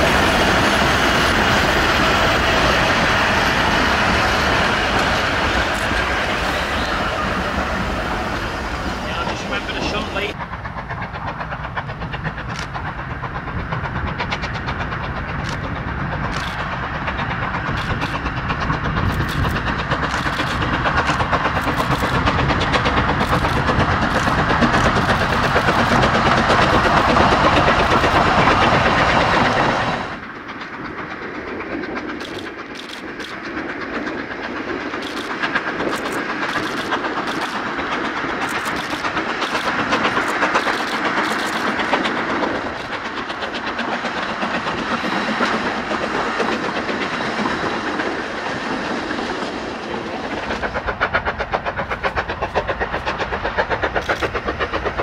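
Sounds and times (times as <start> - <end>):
steam train running: 0.0 - 55.0
rolling sound with sharp clicks: 17.7 - 28.8, 31.9 - 45.6.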